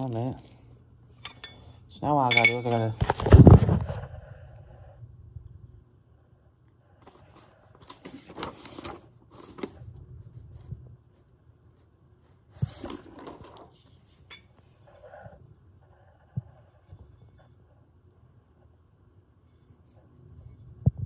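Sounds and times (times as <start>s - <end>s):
light clinking of hardware: 1.2s - 3.0s.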